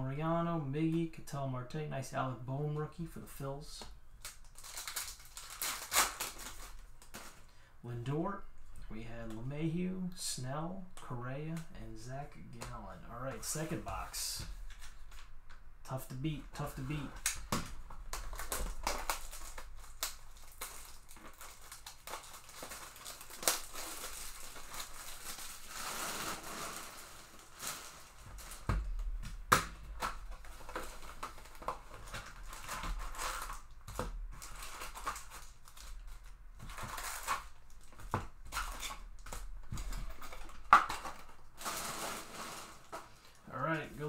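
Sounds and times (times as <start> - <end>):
wrapping crinkling and tearing: 4.2 - 7.5, 16.6 - 44.0
card packs set down: 16.6 - 43.4.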